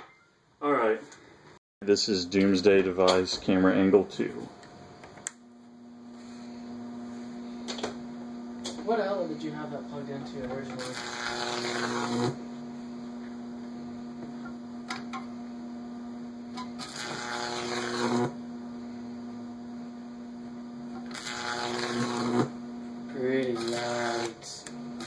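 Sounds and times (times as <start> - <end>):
electric arc buzzing and crackling: 6.5 - 25.0.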